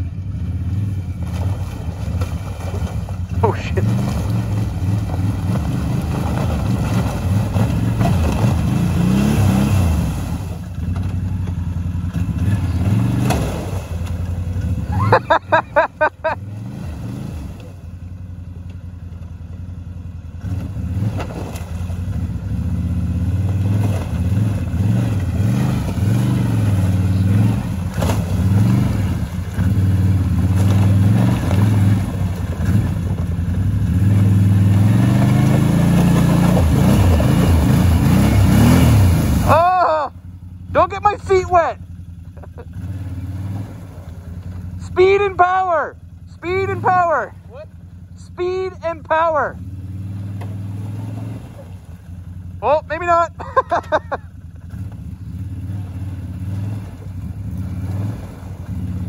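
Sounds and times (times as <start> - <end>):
atv engine revving: 0.0 - 59.0
water splashing: 1.1 - 16.4, 21.0 - 22.3, 23.1 - 40.2, 50.0 - 52.6.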